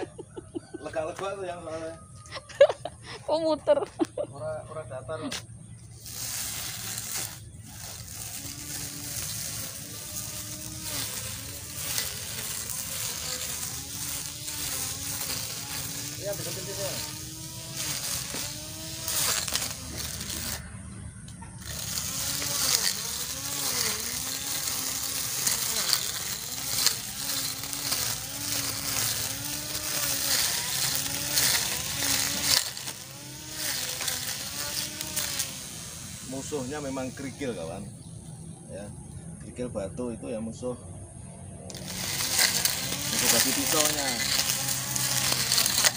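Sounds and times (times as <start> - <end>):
faint motor hum: 2.0 - 40.0, 40.8 - 45.9
grass cutter slicing grass: 5.2 - 38.1, 41.7 - 45.9.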